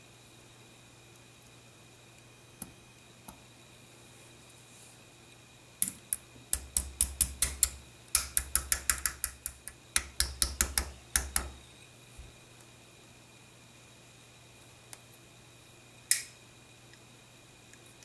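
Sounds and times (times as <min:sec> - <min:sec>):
hammer tapping on steel: 0:05.8 - 0:11.6.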